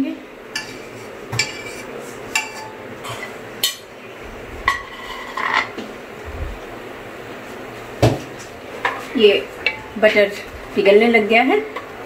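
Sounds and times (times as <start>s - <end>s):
utensil clinking on metal pot: 1.4s - 3.9s.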